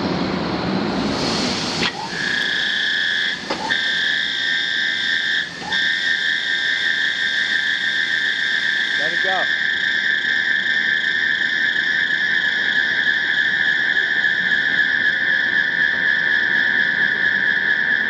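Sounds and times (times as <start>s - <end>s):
broad rushing noise: 0.0s - 2.6s
centrifuge high-pitched whine: 0.0s - 18.0s.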